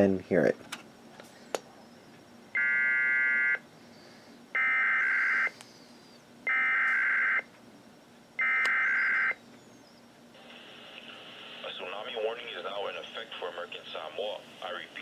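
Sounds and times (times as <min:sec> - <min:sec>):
digital data tone bursts: 0:08.4 - 0:09.4.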